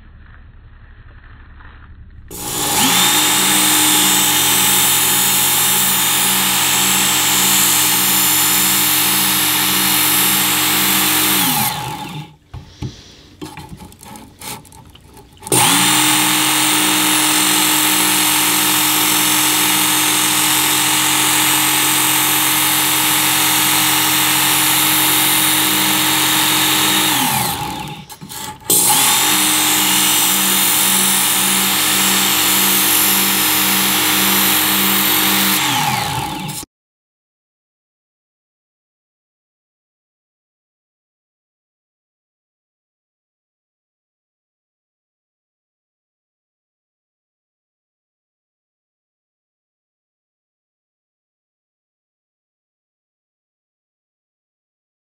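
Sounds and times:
electric knife sharpener whining: 2.3s - 36.7s.

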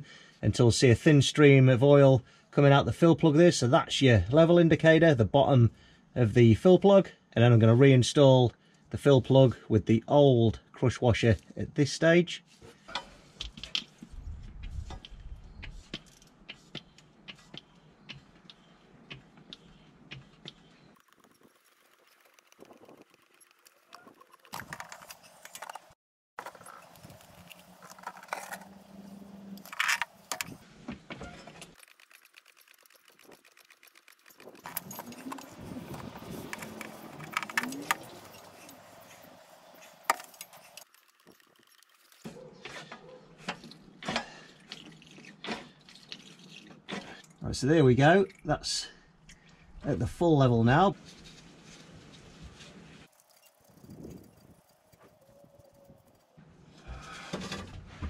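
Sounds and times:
oil pump clicking: 15.9s - 25.6s, 31.7s - 35.6s
pump squeaks: 20.2s - 43.8s
hand pump rattling clicks: 31.7s - 38.6s.

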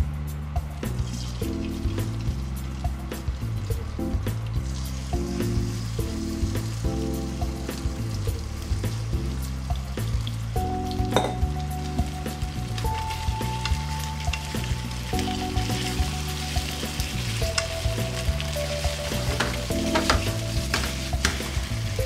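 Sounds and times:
soft background music: 0.0s - 22.0s
chicken sizzling in oil: 0.8s - 22.0s
chopsticks clicking on pan: 18.4s - 21.6s.

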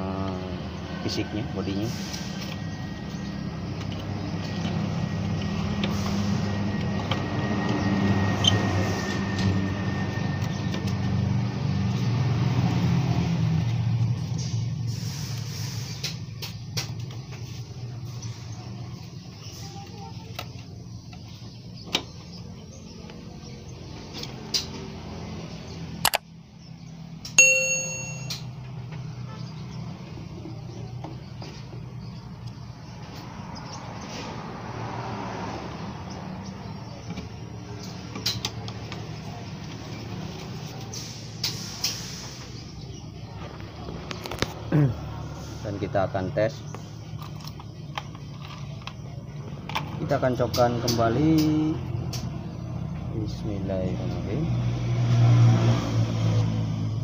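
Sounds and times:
vehicle engine rumbling: 0.0s - 57.0s
small clicks: 26.0s - 26.2s
bright bell ding: 27.4s - 28.5s.

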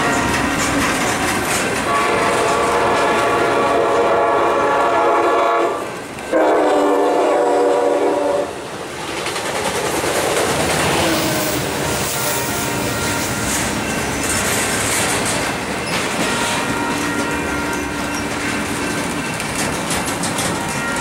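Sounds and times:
locomotive air horn: 0.0s - 8.6s, 10.9s - 13.7s, 16.1s - 17.9s
train cars rumbling and clattering: 0.0s - 21.0s.

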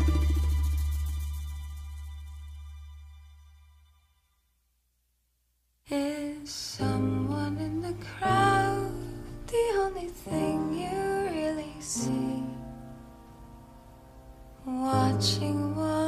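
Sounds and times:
person singing: 0.0s - 1.4s, 5.9s - 12.7s, 14.6s - 16.0s
guitar accompaniment: 0.0s - 1.9s.

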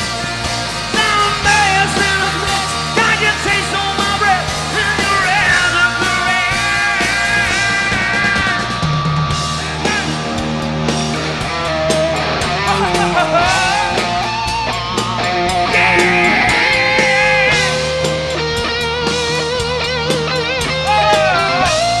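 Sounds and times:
hard rock band playing: 0.0s - 22.0s
lead guitar wavering held notes: 12.8s - 19.7s.

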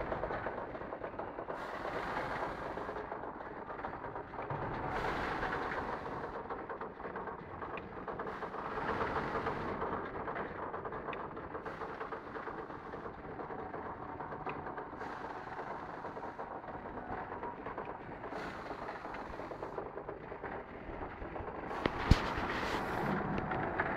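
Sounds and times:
hissy mechanical swell: 14.8s - 20.6s, 21.6s - 23.9s.

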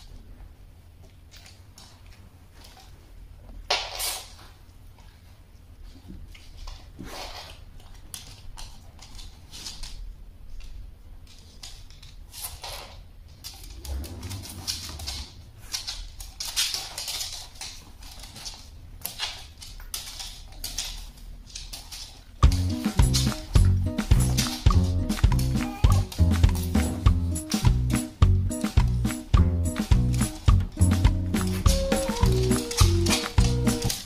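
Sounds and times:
dog claws clicking on wood floor: 6.1s - 28.1s.

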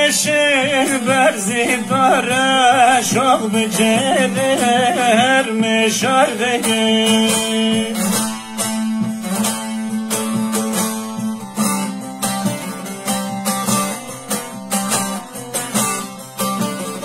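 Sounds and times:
long-necked lute picked melody: 0.0s - 17.0s.

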